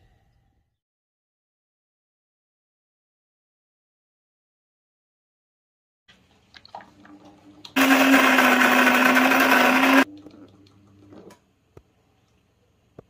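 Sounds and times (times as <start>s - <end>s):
coffee grinder motor whine: 7.8s - 10.1s.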